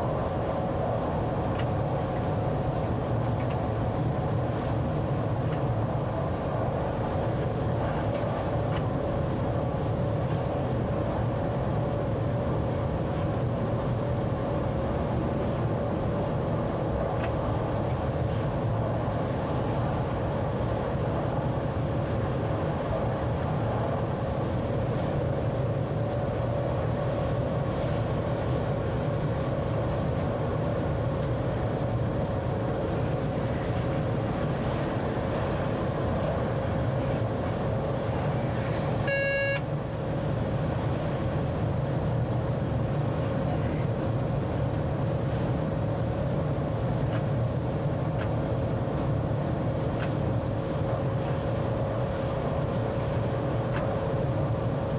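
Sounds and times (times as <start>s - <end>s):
electric train running rumble: 0.0s - 54.9s
short pitched beep: 39.0s - 39.6s.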